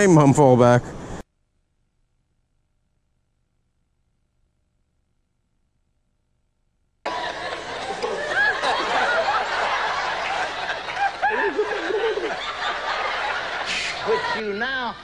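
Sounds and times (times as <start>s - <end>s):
large audience laughing: 7.1s - 14.8s.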